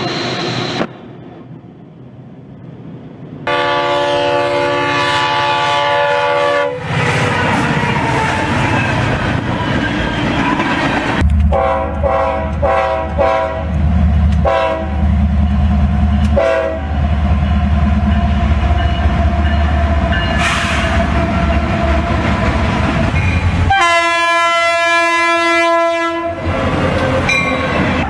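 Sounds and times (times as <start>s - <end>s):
heavy low train rumble: 0.0s - 28.0s
locomotive horn blasts: 3.5s - 6.9s, 11.5s - 13.7s, 14.4s - 15.0s, 16.3s - 16.9s, 23.7s - 26.5s.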